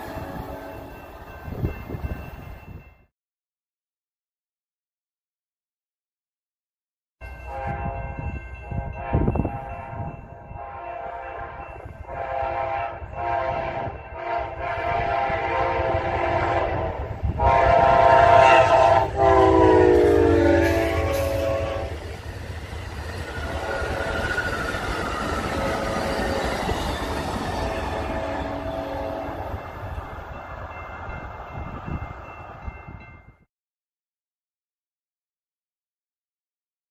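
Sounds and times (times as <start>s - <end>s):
locomotive air horn blasts: 0.0s - 0.9s, 7.5s - 22.0s, 23.5s - 24.2s, 27.6s - 29.6s
train rumble and wheel clatter: 0.0s - 3.0s, 7.2s - 33.4s.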